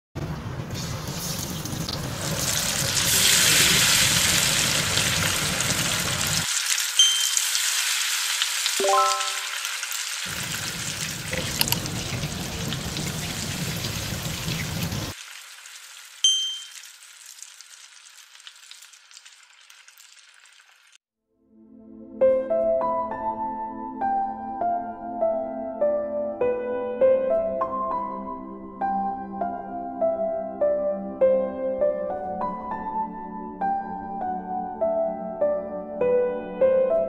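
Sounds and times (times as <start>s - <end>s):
fish deep-frying in hot oil: 0.2s - 21.0s
short ringing tone: 7.0s - 7.6s, 8.8s - 9.7s, 16.2s - 16.8s.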